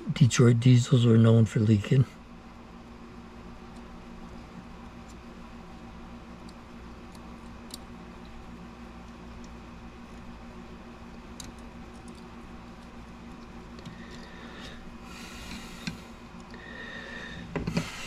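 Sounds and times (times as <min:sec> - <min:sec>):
steady low hum: 0:00.0 - 0:18.0
tweezers clicking and rustling: 0:11.2 - 0:14.3.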